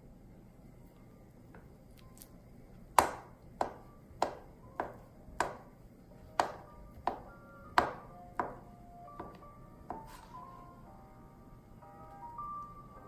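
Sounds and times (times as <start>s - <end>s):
knife chopping on plastic board: 2.9s - 10.2s.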